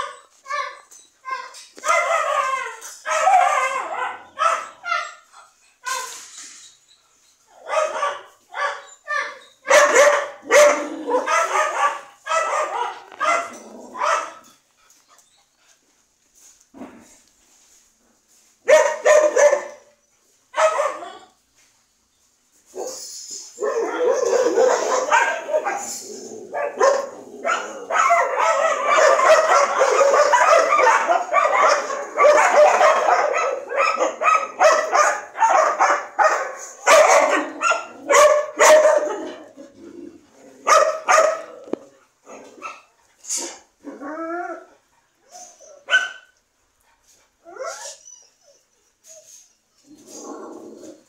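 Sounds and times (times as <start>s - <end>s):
high gliding dog yelps: 0.0s - 6.2s, 7.6s - 14.4s, 23.6s - 26.0s, 26.6s - 39.4s, 45.3s - 46.4s
dogs barking: 1.8s - 5.2s, 7.6s - 8.8s, 9.7s - 14.5s, 18.7s - 19.9s, 20.6s - 21.2s, 23.6s - 39.6s, 40.6s - 41.7s.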